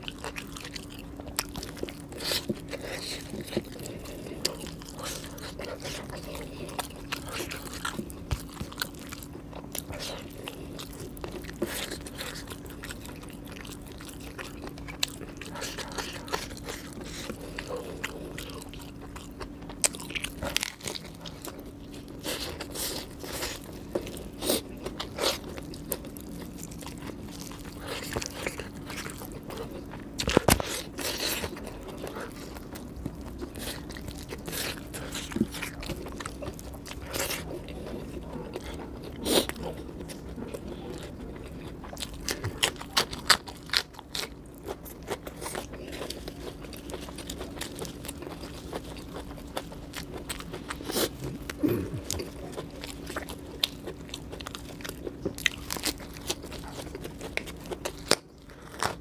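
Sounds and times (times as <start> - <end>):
chewing and crunching food: 0.0 - 59.0.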